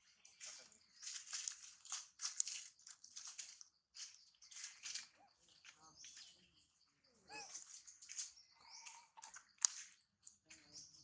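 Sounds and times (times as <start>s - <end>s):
rustling in dry leaves: 0.0s - 6.5s, 7.2s - 10.0s.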